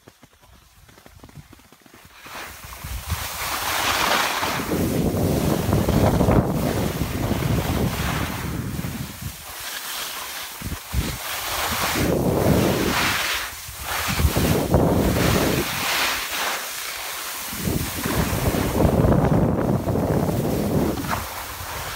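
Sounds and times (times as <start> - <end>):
skis sliding on snow: 0.0 - 21.9
wind buffeting microphone: 2.6 - 9.5, 10.6 - 16.2, 17.4 - 21.9.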